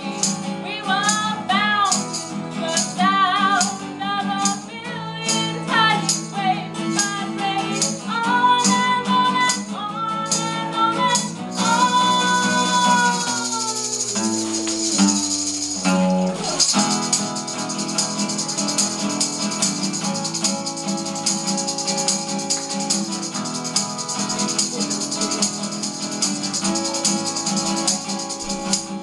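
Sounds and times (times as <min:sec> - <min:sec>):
tambourine rattle: 0:00.0 - 0:09.7, 0:10.3 - 0:29.0
acoustic guitar strumming: 0:00.0 - 0:29.0.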